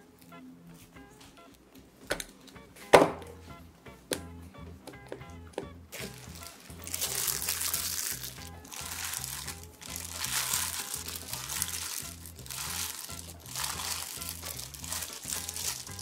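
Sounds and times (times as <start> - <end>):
background music with bass line: 2.6 - 16.0
plastic glove crinkling: 5.9 - 16.0
vegetables rustling: 5.9 - 16.0.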